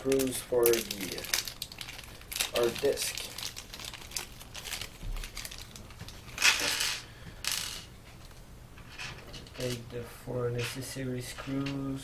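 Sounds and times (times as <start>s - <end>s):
plastic bag crinkling: 0.0s - 7.7s.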